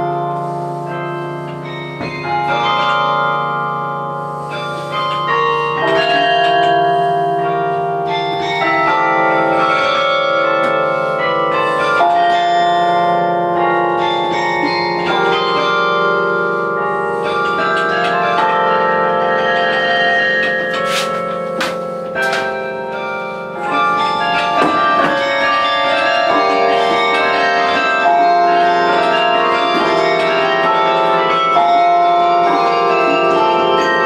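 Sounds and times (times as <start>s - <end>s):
carillon bells ringing: 0.0s - 34.0s.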